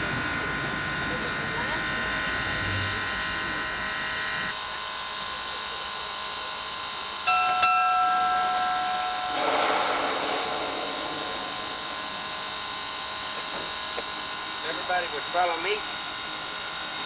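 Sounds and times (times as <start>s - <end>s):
steam hissing: 9.2s - 15.8s.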